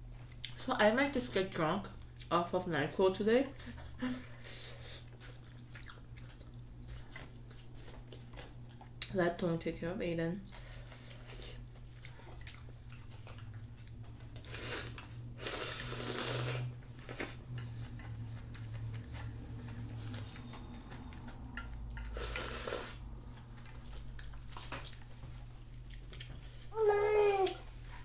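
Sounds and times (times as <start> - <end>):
chewing: 3.6 - 9.1, 10.5 - 26.7
noodle slurping: 14.4 - 17.4, 22.1 - 23.1.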